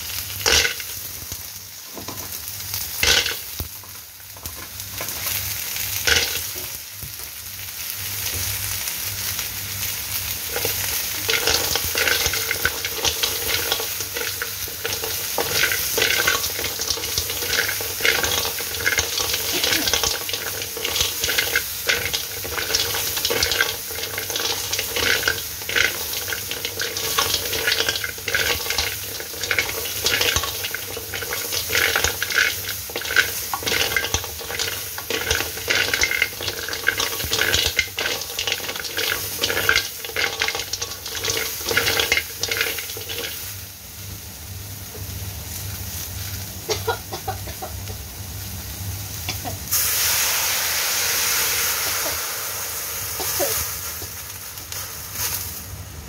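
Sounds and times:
food sizzling: 0.0 - 56.0
shells clattering in wok: 0.4 - 1.0, 3.0 - 3.5, 6.0 - 6.5, 10.5 - 43.5
spatula scraping wok: 10.5 - 43.6.

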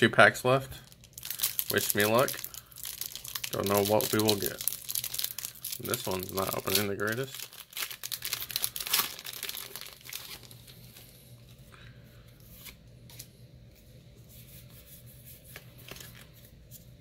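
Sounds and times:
foil wrapper tearing and crinkling: 0.9 - 11.0.

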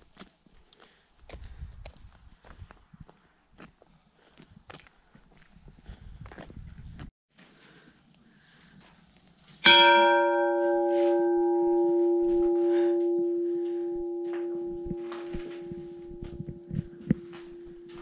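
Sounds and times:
church bell ringing: 9.6 - 18.0.

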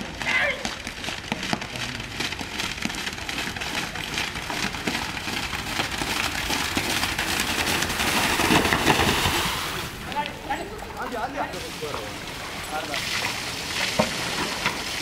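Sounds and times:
water splashing: 10.8 - 15.0.

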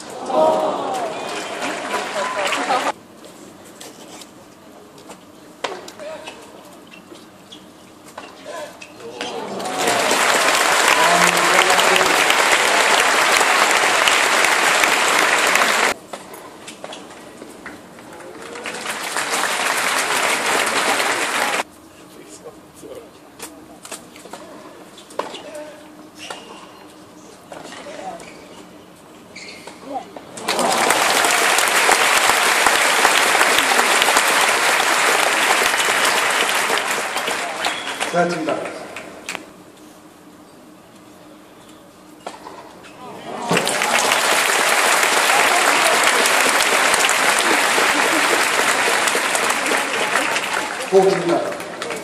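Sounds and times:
crowd applauding: 0.0 - 3.0, 9.4 - 16.0, 18.2 - 21.7, 30.4 - 39.1, 43.4 - 52.0.

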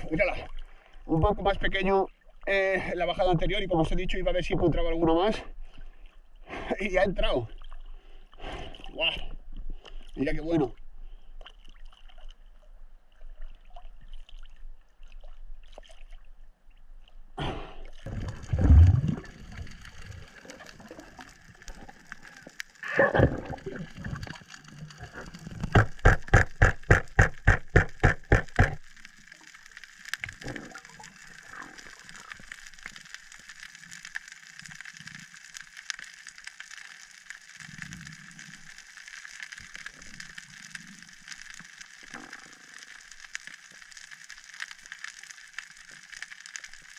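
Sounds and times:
water splashing and gurgling: 11.1 - 46.9
underwater hiss with crackling: 18.0 - 46.9.

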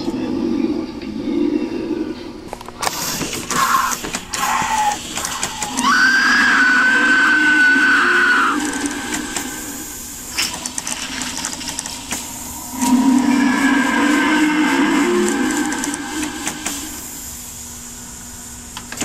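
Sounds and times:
steady noise: 0.0 - 19.0
high sliding electronic tone: 11.9 - 17.3.

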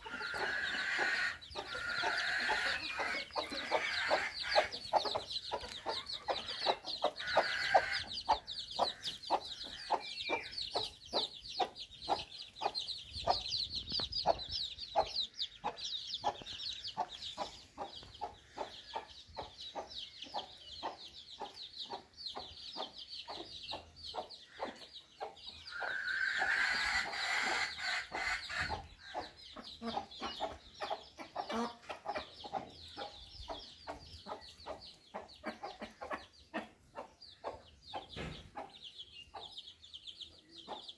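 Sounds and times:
drawn-out hen call: 0.0 - 5.0, 5.6 - 9.9, 25.8 - 28.8
chickens clucking: 0.0 - 40.9
chicks peeping: 0.0 - 40.9.

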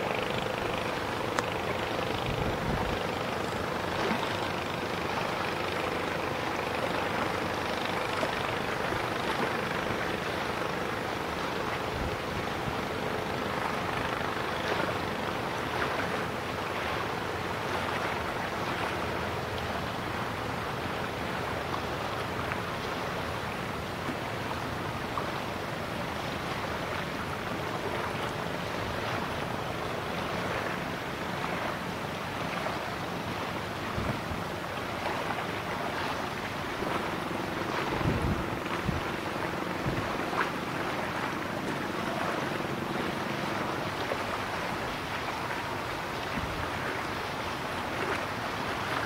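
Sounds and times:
wind on microphone: 0.0 - 6.0, 33.8 - 35.2, 36.8 - 41.0, 46.1 - 47.1
faint steady hum: 0.0 - 49.0.

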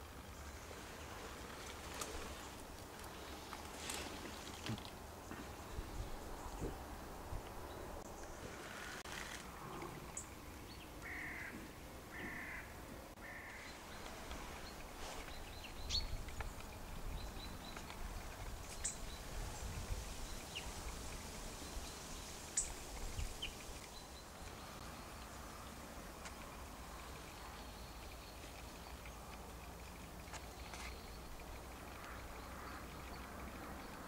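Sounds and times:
crow cawing: 11.0 - 13.7.

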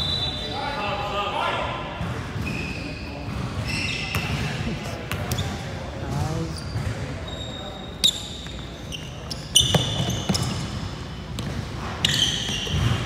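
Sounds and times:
sneakers squeaking on court: 2.0 - 13.0
basketball bouncing: 9.6 - 10.7, 12.4 - 13.0.

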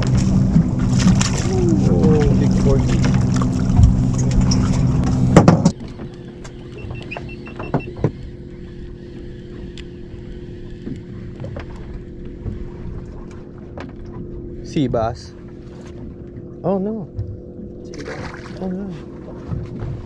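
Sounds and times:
outboard boat motor idling: 0.0 - 20.0.

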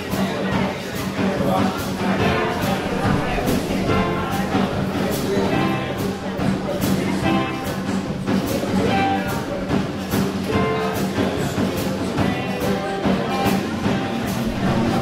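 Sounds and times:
drum kit beat: 0.0 - 15.0
electric bass: 2.0 - 10.9
electric guitar: 2.0 - 15.0.

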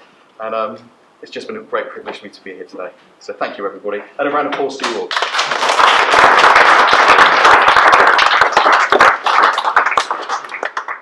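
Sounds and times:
people applauding: 4.8 - 11.0.

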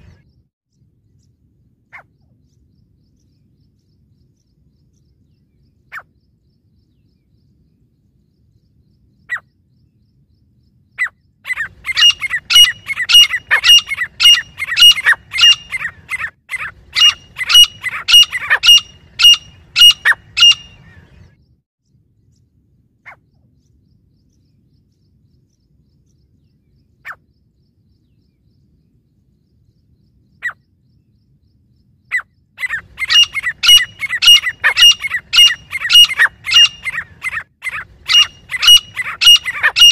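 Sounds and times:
francolins calling: 11.0 - 21.3, 30.3 - 30.7, 32.0 - 39.9.

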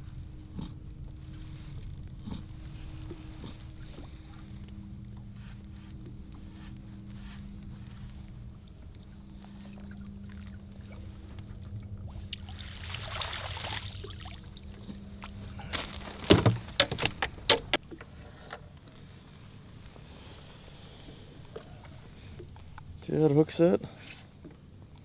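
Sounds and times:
low motor hum: 0.0 - 18.2.

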